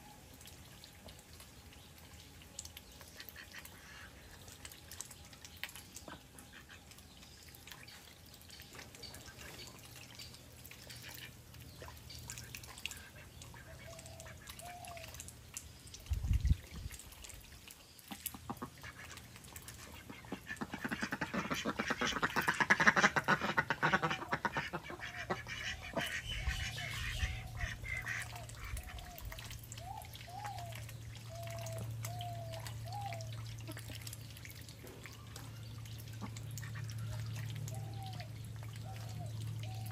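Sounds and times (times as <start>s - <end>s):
ducks dabbling in water: 0.0s - 39.9s
soft duck quacks: 18.1s - 29.0s.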